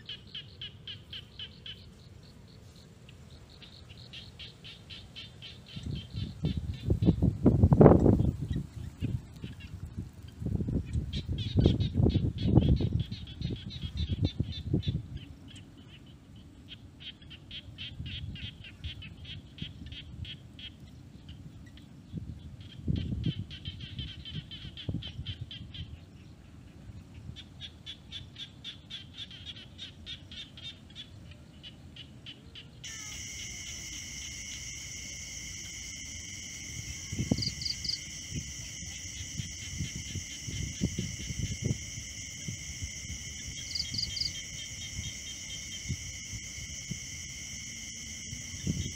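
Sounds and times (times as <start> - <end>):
high-pitched insect drone: 32.8 - 48.9
rapid high chirping: 32.8 - 48.9.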